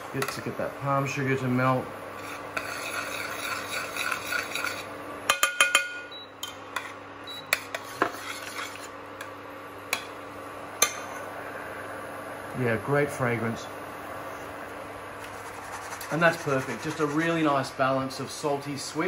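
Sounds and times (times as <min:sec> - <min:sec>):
metal spoon scraping saucepan: 0:02.2 - 0:05.8, 0:06.8 - 0:08.9.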